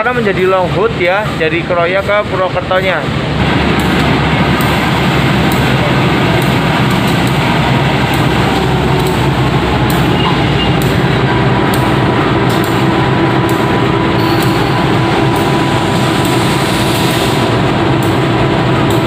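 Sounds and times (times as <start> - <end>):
locomotive engine drone: 0.0 - 19.0
sharp clicks: 11.7 - 12.8.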